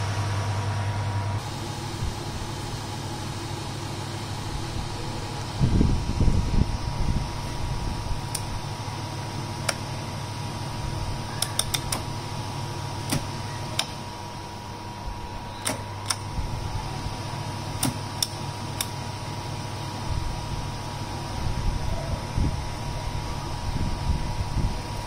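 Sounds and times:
steady machine hum: 0:00.0 - 0:25.0
oven control knob clicks: 0:11.4 - 0:12.0.

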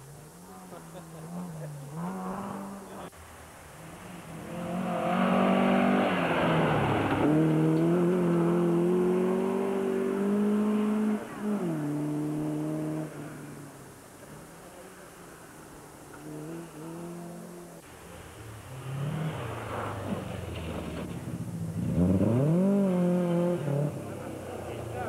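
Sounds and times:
rally car engine accelerating: 0:00.2 - 0:03.1, 0:04.0 - 0:13.6, 0:18.6 - 0:25.0.

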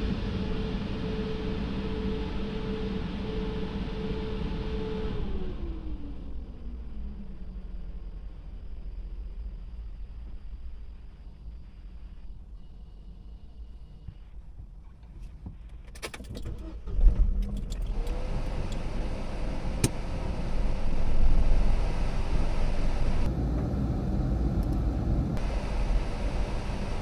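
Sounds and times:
car engine starting and running: 0:12.3 - 0:27.0.

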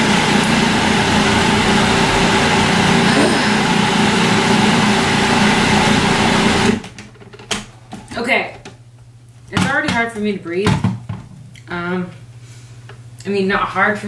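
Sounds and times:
food processor whirring: 0:00.0 - 0:07.0.

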